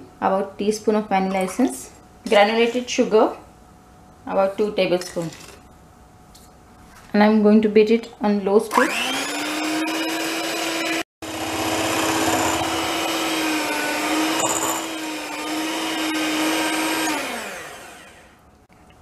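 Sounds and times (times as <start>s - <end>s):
electric hand mixer whine: 8.7s - 18.4s.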